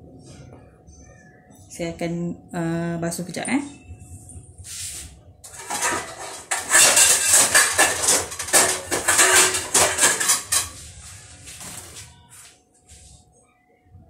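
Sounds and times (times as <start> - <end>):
vegetables clattering in plastic bowl: 5.5 - 10.8.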